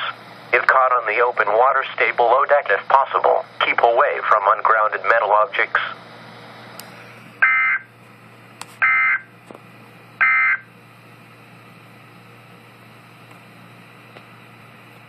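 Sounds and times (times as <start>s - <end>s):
radio static hiss: 0.0s - 6.1s
buzzing digital data tones: 7.4s - 7.8s, 8.8s - 9.2s, 10.2s - 10.6s.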